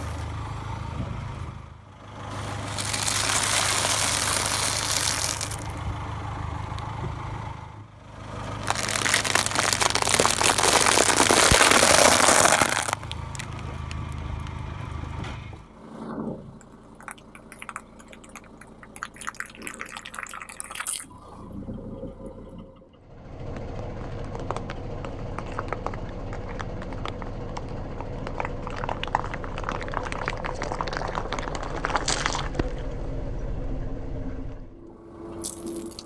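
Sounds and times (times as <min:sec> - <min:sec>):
car engine idling: 0:00.0 - 0:36.0
potato chips crackling: 0:02.6 - 0:05.8, 0:08.6 - 0:14.2, 0:17.0 - 0:21.0, 0:28.2 - 0:32.8, 0:35.4 - 0:36.0
dry pasta crunching: 0:02.7 - 0:05.7, 0:08.6 - 0:14.1, 0:17.0 - 0:21.1, 0:25.3 - 0:32.8, 0:35.4 - 0:36.0
cherries squashing with pops: 0:02.7 - 0:05.8, 0:08.6 - 0:14.2, 0:25.4 - 0:32.8.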